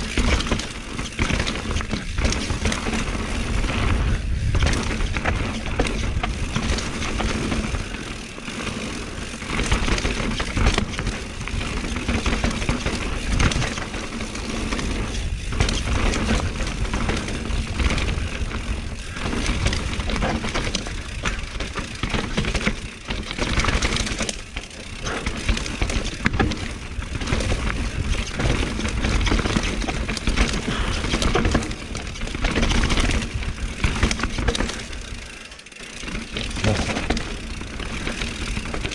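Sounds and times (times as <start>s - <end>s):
bike rattling over bumps: 0.0s - 38.9s
bike tyres on dirt: 0.0s - 38.9s
wind buffeting microphone: 3.2s - 6.6s.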